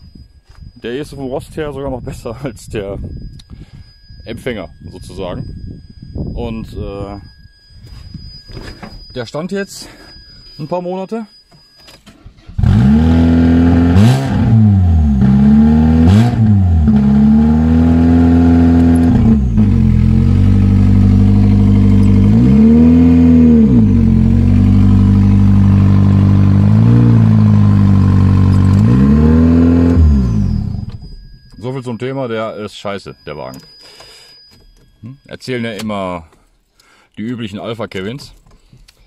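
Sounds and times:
car engine starting and idling: 12.1 - 31.5.

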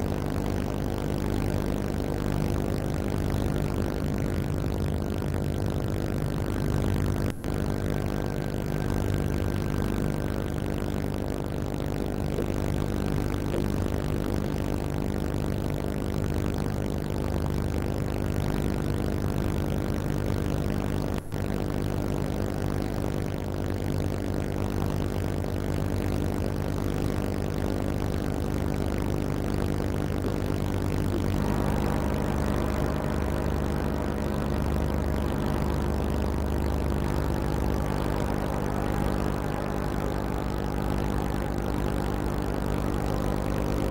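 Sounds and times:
diesel boat engine droning: 0.0 - 14.3, 30.1 - 43.9.

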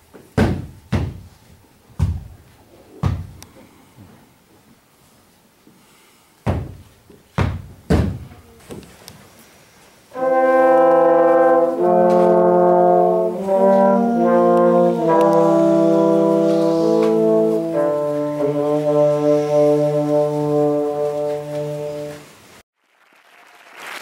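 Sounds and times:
brass playing slow chords: 10.1 - 22.3.

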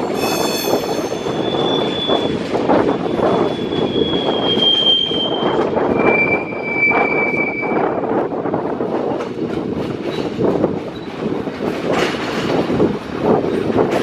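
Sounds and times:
train wheels squealing: 0.0 - 8.0, 10.9 - 11.2
wheels rumbling on rail: 0.0 - 14.0.

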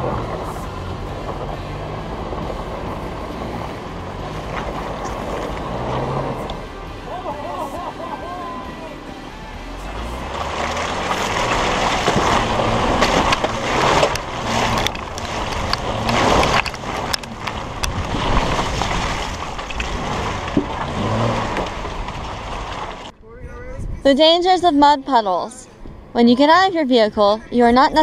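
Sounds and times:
car engine and tyre noise: 0.0 - 28.0
mud clods spattering: 10.1 - 23.1
wind on microphone: 23.2 - 24.7.

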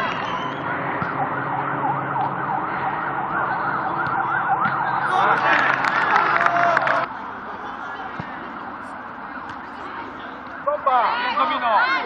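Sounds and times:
siren in a fast yelp: 0.0 - 7.1.

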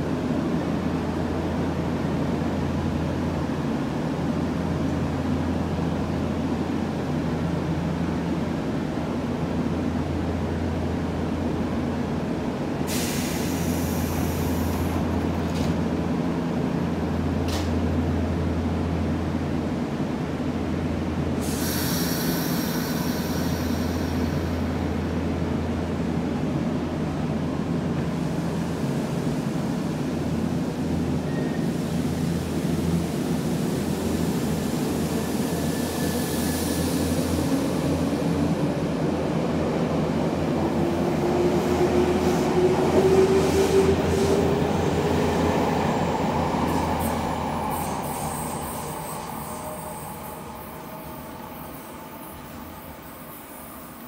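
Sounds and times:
electric train humming: 13.5 - 54.0.

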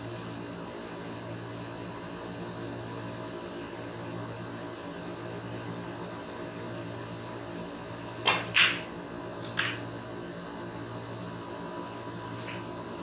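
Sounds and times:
snooker ball clicks: 8.3 - 9.8.

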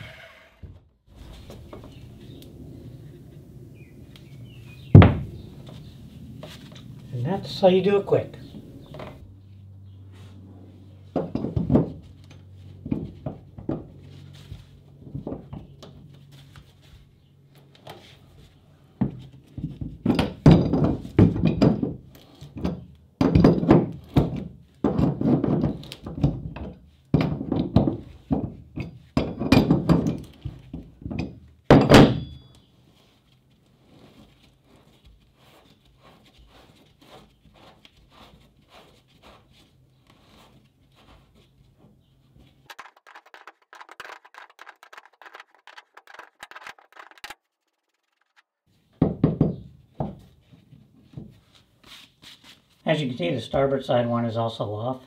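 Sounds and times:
wrench clunking and scraping: 19.0 - 32.6.

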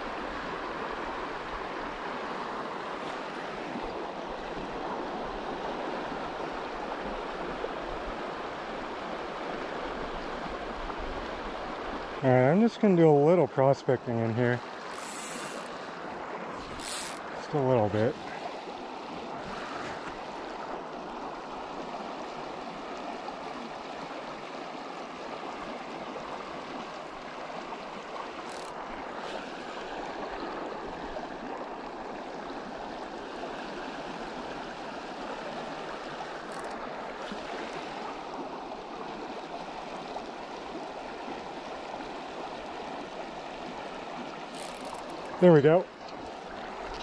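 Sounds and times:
water rushing over stones: 14.2 - 47.0.

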